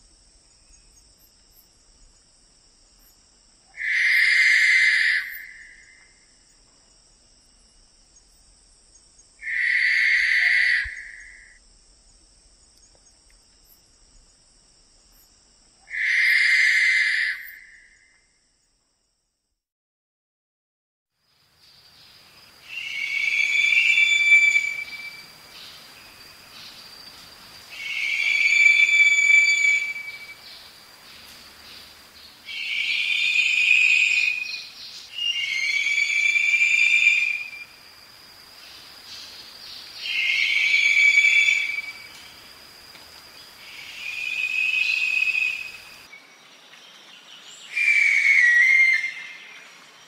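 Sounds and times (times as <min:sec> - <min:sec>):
owl whistling screeches: 0:03.8 - 0:05.8, 0:09.4 - 0:11.6, 0:15.9 - 0:17.8, 0:22.7 - 0:25.3, 0:27.7 - 0:30.4, 0:32.5 - 0:37.7, 0:40.0 - 0:42.2, 0:43.7 - 0:45.8, 0:47.7 - 0:49.4.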